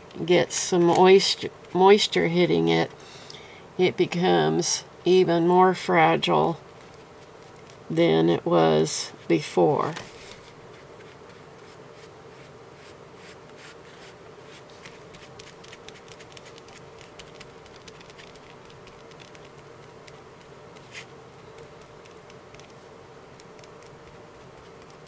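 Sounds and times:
steady buzzing hum: 0.0s - 25.0s
sponge dabbing on paper: 10.1s - 25.0s.

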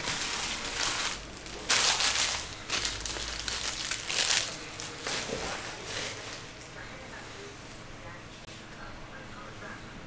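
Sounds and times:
foil wrappers crinkling: 0.0s - 6.5s.

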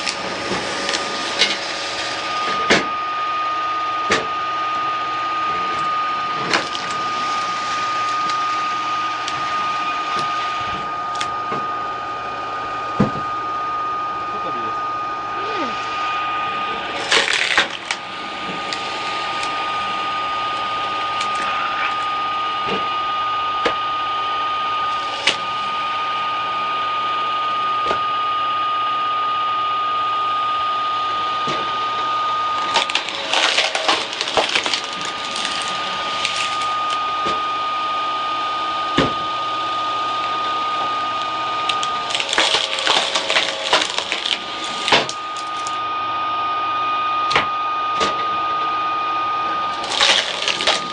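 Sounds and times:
electric motor whining: 0.0s - 27.7s, 30.4s - 50.9s
wood cracking and splintering: 6.5s - 8.4s, 17.0s - 18.0s, 32.6s - 37.0s, 41.6s - 45.8s, 49.7s - 50.9s.

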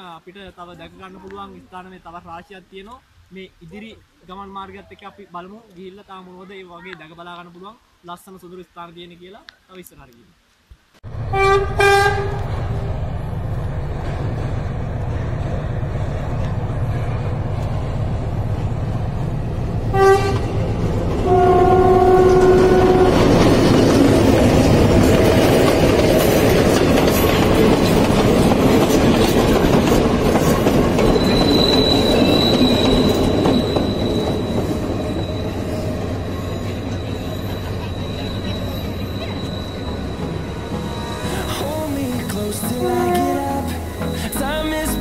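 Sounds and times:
train rumble and clatter: 11.1s - 44.0s
diesel locomotive engine throbbing: 11.1s - 44.2s
train horn: 11.3s - 12.5s, 19.9s - 20.6s, 21.2s - 23.4s, 42.8s - 43.8s
wheels squealing: 20.0s - 41.8s.

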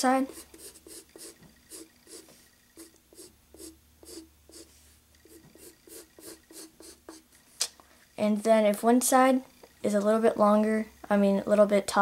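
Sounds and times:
pencil sketching on paper: 0.1s - 7.2s.

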